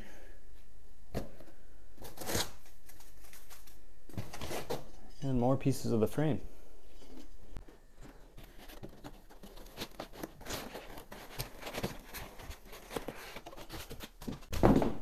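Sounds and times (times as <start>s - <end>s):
foam packaging rustling: 2.0s - 4.9s, 7.7s - 14.5s.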